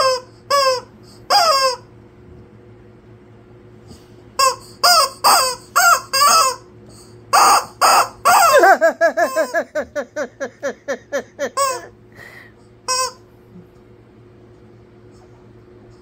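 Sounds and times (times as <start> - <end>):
rubber chicken toy squeaking: 0.0 - 1.8, 4.4 - 6.6, 7.4 - 8.6, 11.6 - 11.8, 12.9 - 13.2.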